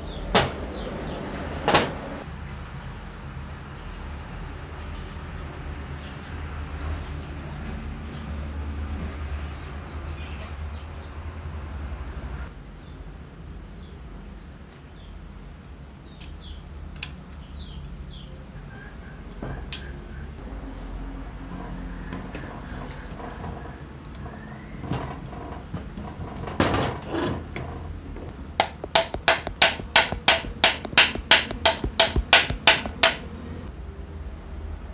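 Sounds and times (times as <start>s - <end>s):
small birds chirping: 0.0s - 1.7s, 2.7s - 12.0s, 13.7s - 16.8s, 17.4s - 20.4s.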